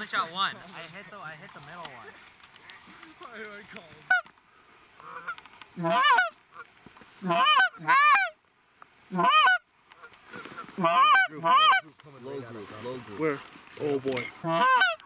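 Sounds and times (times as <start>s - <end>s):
goose honking: 2.6s - 4.3s, 5.0s - 8.4s, 9.1s - 13.2s, 14.1s - 15.0s.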